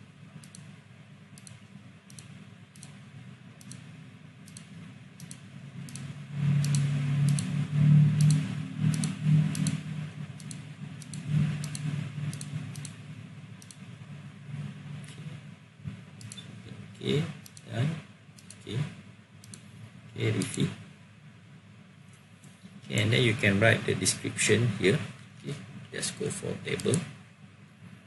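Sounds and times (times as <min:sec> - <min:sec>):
low hum: 0:00.0 - 0:28.0
computer mouse clicking: 0:00.4 - 0:00.7, 0:01.4 - 0:03.0, 0:03.6 - 0:13.0, 0:13.6 - 0:13.8, 0:16.2 - 0:16.5, 0:17.4 - 0:17.7, 0:18.4 - 0:18.8, 0:19.4 - 0:19.7, 0:26.7 - 0:27.0.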